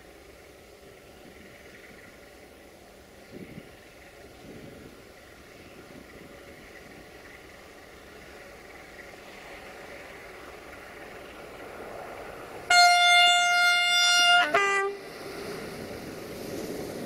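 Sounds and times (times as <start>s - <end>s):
diesel locomotive engine running: 0.0s - 17.0s
locomotive horn blast: 12.7s - 15.1s.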